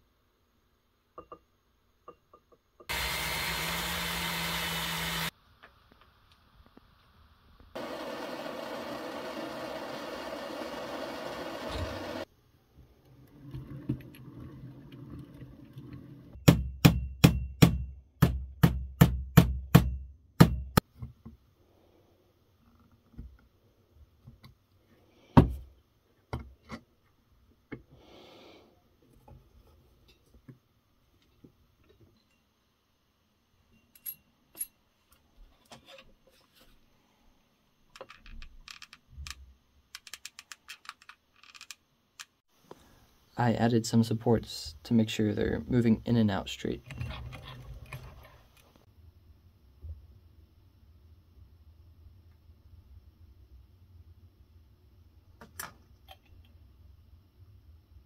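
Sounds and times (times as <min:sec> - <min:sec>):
small parts clicking on metal: 0:37.9 - 0:42.4.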